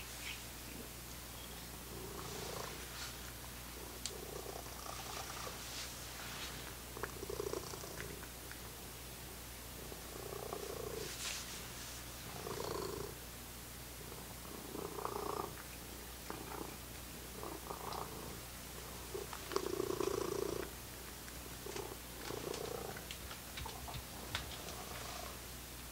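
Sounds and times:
cat purring: 0:01.8 - 0:08.9, 0:09.8 - 0:11.4, 0:12.2 - 0:13.2, 0:14.0 - 0:20.8, 0:21.4 - 0:25.4.

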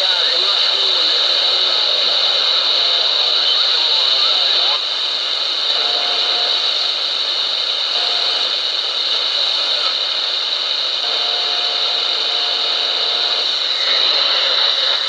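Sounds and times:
radio static hiss: 0:00.0 - 0:15.0
faint steady whistle: 0:05.7 - 0:07.0, 0:07.9 - 0:08.6, 0:11.0 - 0:15.0.

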